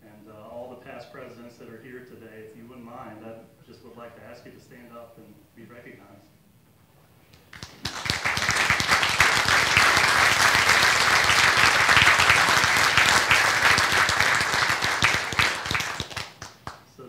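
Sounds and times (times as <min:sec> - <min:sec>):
audience applauding: 0:07.4 - 0:16.9.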